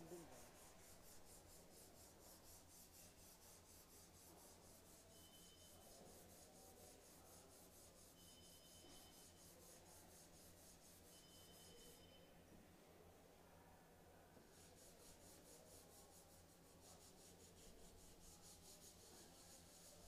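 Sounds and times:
sandpaper rasping on filler: 0:00.0 - 0:11.2, 0:14.4 - 0:20.0.

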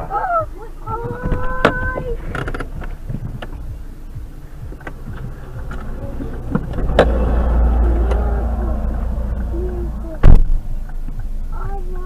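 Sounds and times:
low rumble: 0:00.4 - 0:12.0.

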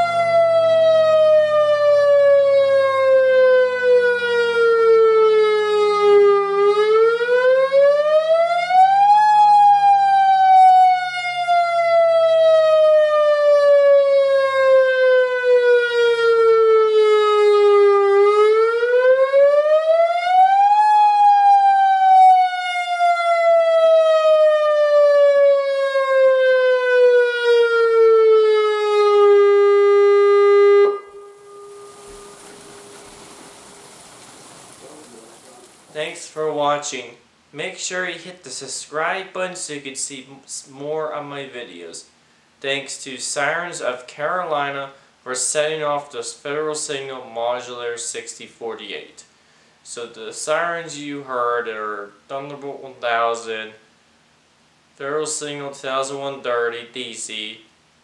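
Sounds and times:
electronic warning siren wailing: 0:00.0 - 0:33.9
fainter lower siren tone: 0:00.0 - 0:35.4.

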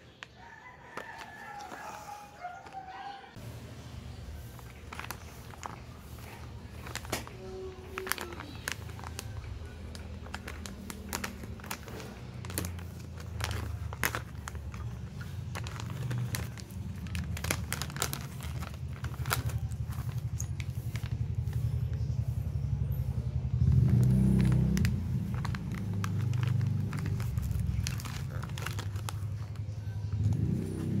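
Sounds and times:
plastic packaging crinkling: 0:00.0 - 0:03.2, 0:04.2 - 0:22.1, 0:23.6 - 0:31.0.

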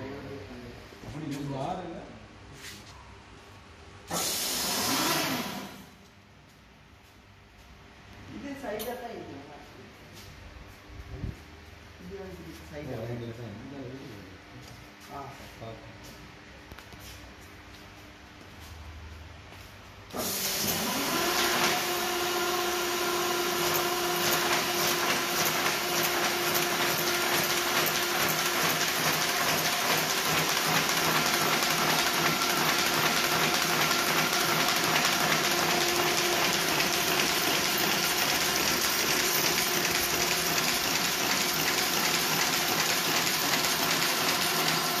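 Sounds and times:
paper folding machine whirring: 0:04.1 - 0:05.8, 0:20.1 - 0:45.0.

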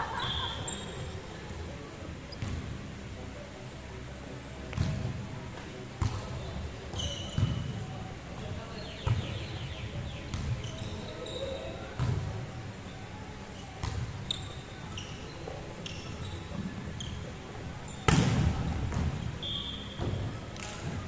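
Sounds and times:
sneakers squeaking on wooden court: 0:00.2 - 0:01.2, 0:06.9 - 0:07.8, 0:09.0 - 0:12.1, 0:13.8 - 0:17.3, 0:17.9 - 0:20.2.

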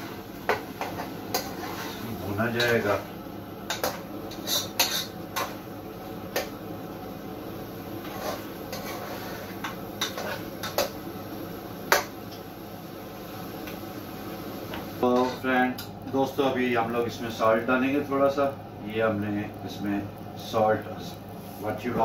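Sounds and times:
meat frying in a pan: 0:00.0 - 0:22.0
metal spoon scraping a pan: 0:00.5 - 0:03.0, 0:03.7 - 0:05.6, 0:08.0 - 0:11.0, 0:15.1 - 0:15.5.

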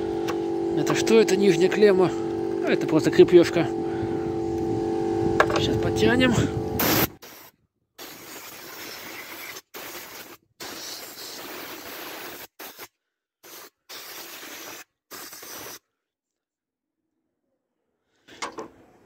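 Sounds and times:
air blow gun hissing: 0:06.4 - 0:15.8.

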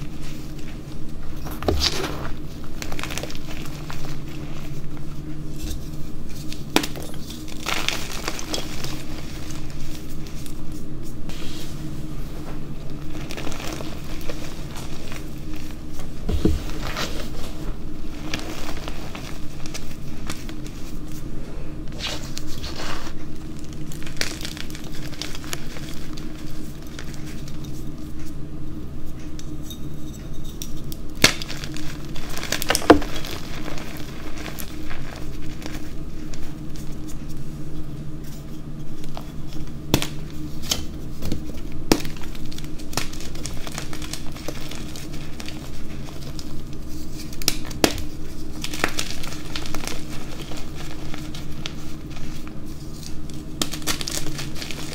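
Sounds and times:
hands crushing chalk powder: 0:01.5 - 0:11.7, 0:21.9 - 0:28.4, 0:30.6 - 0:37.5, 0:38.2 - 0:54.9.

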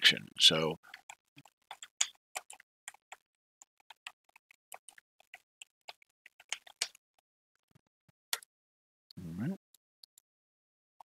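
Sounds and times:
computer keyboard typing: 0:00.9 - 0:07.0.

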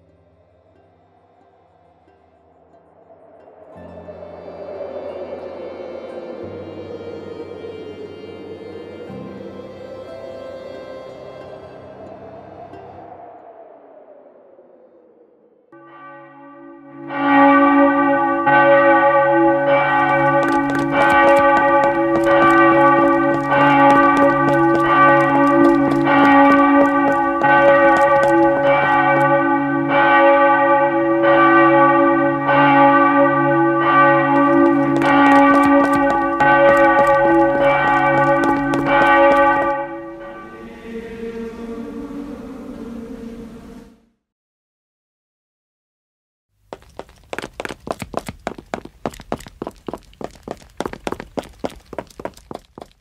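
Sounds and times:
church bell ringing: 0:15.8 - 0:40.8.

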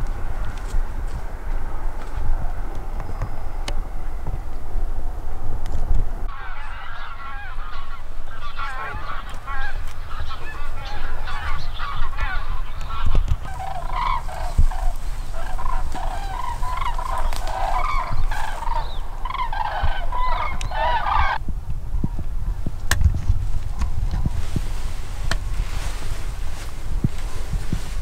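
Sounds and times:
flock of birds calling: 0:06.3 - 0:21.4.

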